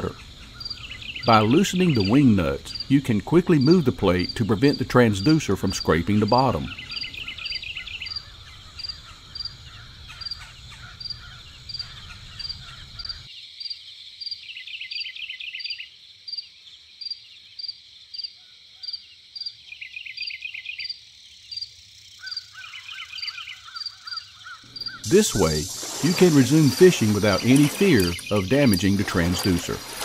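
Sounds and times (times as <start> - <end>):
warbling bird calls: 0.0 - 13.3, 22.2 - 30.0.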